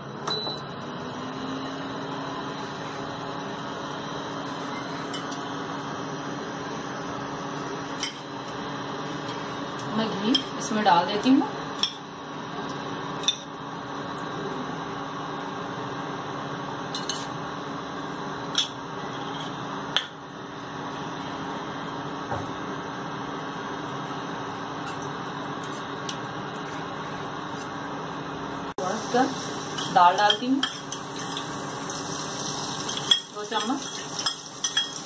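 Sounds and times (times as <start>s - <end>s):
ghee hissing in a pan: 28.8s - 35.0s.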